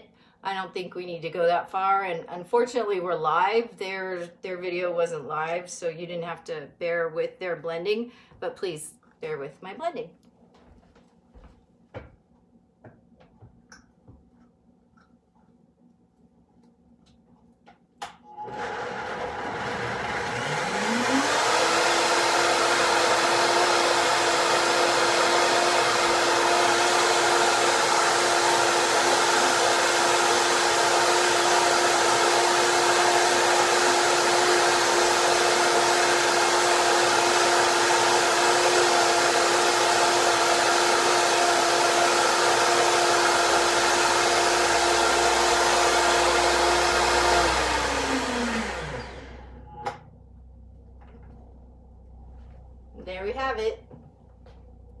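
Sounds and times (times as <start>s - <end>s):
blender motor running: 18.3s - 50.0s.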